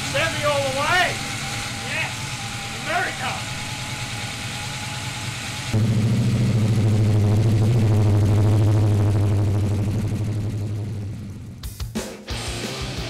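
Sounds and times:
engine idling: 0.0s - 11.8s.

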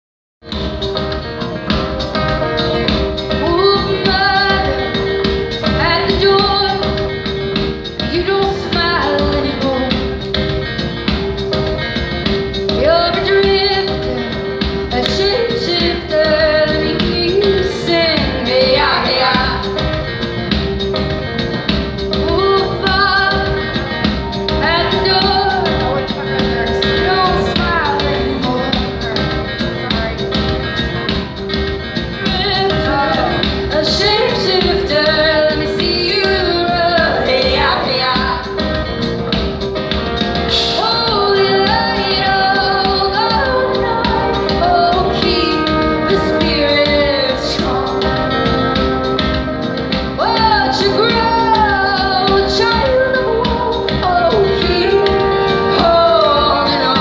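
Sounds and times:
drums: 0.4s - 57.0s
electric guitar: 0.4s - 57.0s
female voices singing: 50.2s - 57.0s.

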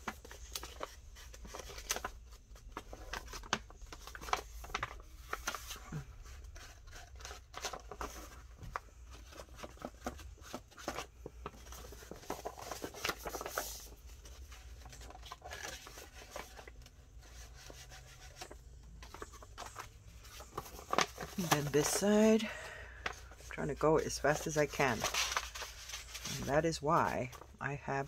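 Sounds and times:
paper scratching and scraping: 23.6s - 27.4s.

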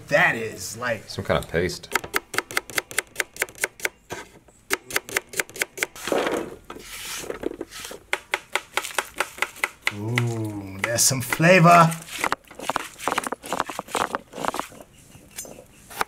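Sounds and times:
knife chopping on wooden board: 8.1s - 14.7s
rustling: 11.5s - 16.0s.

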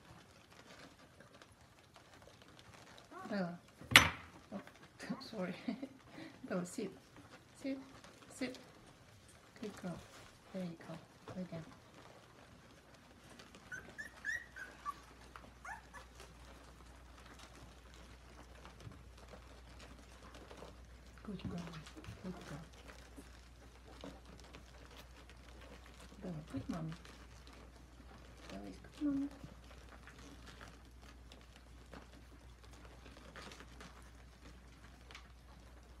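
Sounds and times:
puppies rustling and clicking: 0.0s - 36.0s
puppies squeaking: 13.3s - 16.9s.

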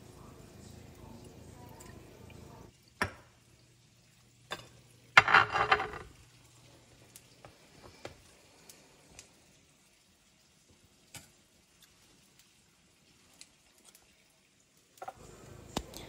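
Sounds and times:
clatter of glass and stone: 4.5s - 6.1s.

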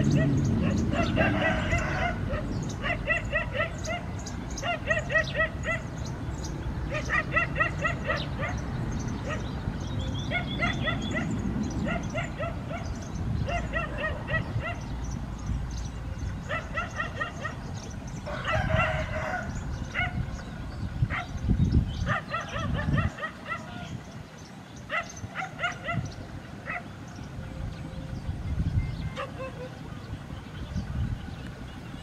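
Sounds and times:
dogs yipping and barking: 0.0s - 32.0s.

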